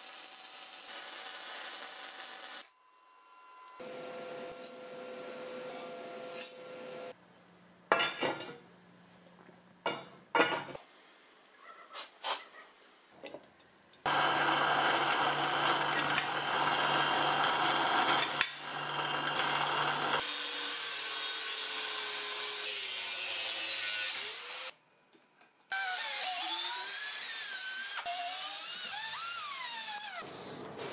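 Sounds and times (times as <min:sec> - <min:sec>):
angle grinder cutting metal: 0:00.0 - 0:02.7, 0:14.1 - 0:24.7, 0:25.8 - 0:30.2
drill press drilling steel: 0:14.1 - 0:20.8.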